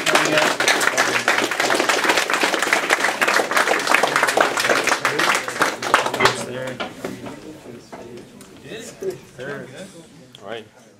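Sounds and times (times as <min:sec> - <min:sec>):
crowd clapping: 0:00.0 - 0:06.8.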